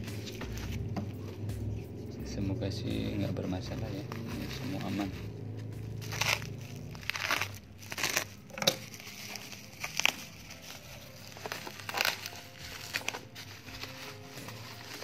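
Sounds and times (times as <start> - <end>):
bubble wrap and cardboard crinkling: 0.0 - 1.8, 2.9 - 15.0.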